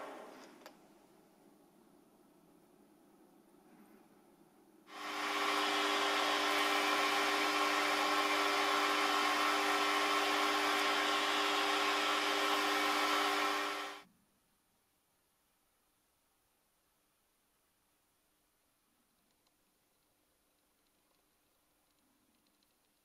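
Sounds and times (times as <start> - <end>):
metal lathe humming: 4.9 - 14.0.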